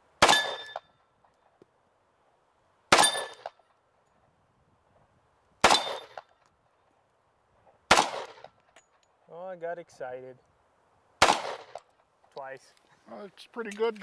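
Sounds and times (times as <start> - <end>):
metallic ring of steel target: 0.2 - 0.9, 3.0 - 3.5, 5.6 - 6.2
pistol shots: 0.2 - 0.9, 2.9 - 3.6, 5.6 - 6.3, 7.9 - 8.6, 11.2 - 11.8.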